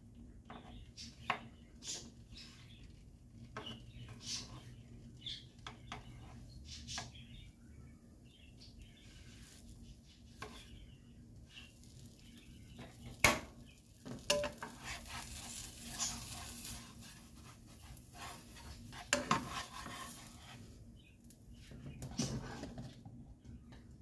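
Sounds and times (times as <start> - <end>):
faint sizzle: 0.0 - 24.0
spatula scraping frying pan: 0.5 - 7.2, 8.7 - 20.9.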